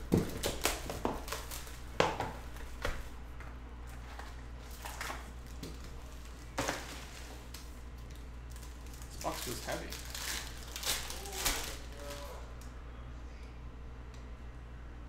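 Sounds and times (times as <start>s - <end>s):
steady low hum: 0.0s - 15.0s
trading cards handled and rustling: 3.9s - 12.2s.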